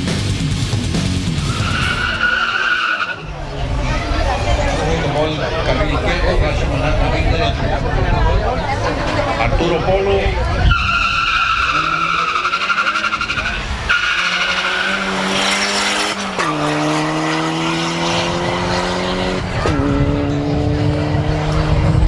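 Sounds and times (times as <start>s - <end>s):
car engines revving: 0.0s - 22.0s
tyre squeal: 10.7s - 15.2s.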